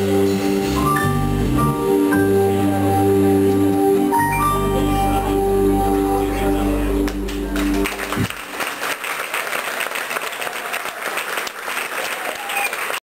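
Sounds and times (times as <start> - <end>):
band chord: 0.0 - 9.0
audience applause: 7.0 - 13.0.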